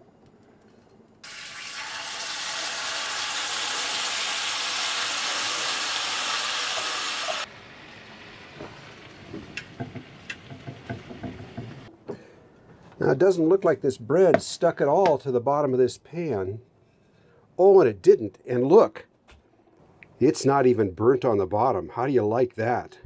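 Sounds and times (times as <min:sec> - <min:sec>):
beans sizzling in a frying pan: 0:01.2 - 0:10.7.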